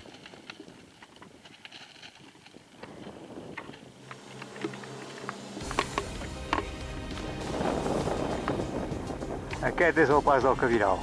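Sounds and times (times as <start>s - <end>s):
footsteps on loose stones: 0.0s - 8.7s
wind buffeting microphone: 2.2s - 11.0s.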